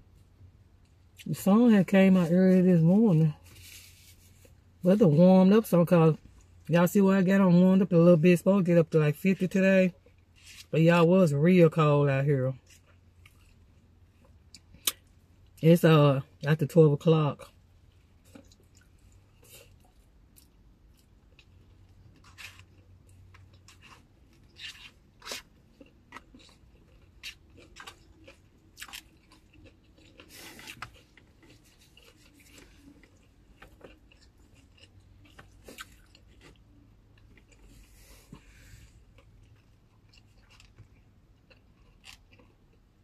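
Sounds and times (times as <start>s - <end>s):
person chewing food: 12.6s - 15.6s, 17.4s - 43.0s.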